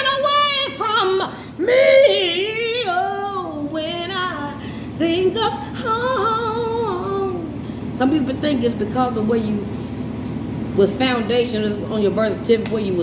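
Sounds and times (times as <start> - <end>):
woman singing unaccompanied: 0.0 - 9.7.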